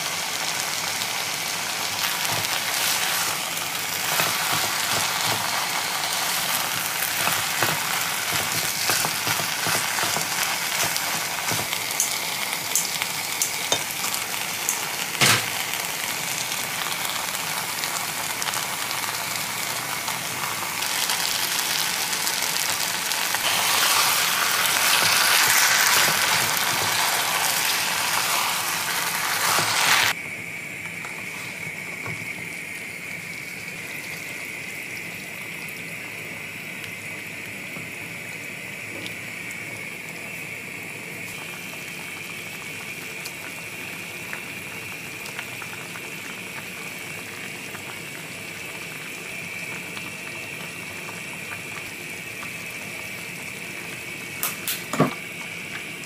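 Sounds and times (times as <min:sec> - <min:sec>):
stew bubbling and hissing: 0:16.2 - 0:30.2.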